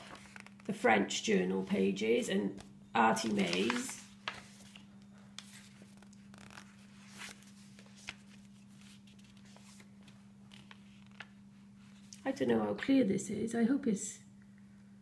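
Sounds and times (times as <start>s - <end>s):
paper pages rustling: 0.0s - 0.7s, 3.2s - 12.2s.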